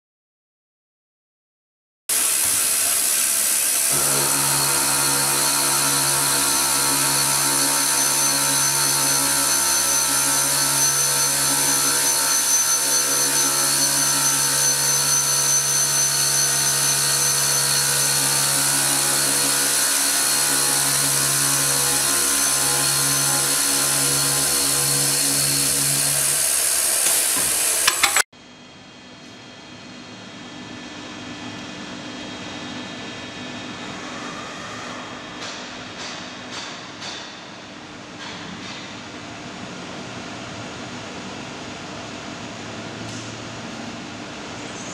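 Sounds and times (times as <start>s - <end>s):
circular saw cutting steel: 2.1s - 28.3s.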